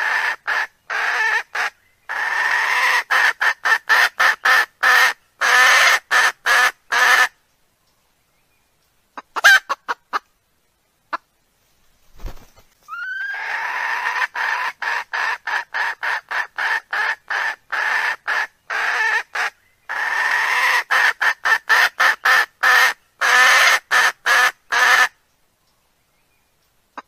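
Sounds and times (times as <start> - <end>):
chicken clucking and squawking: 0.0 - 7.3, 9.2 - 10.3, 12.2 - 25.1.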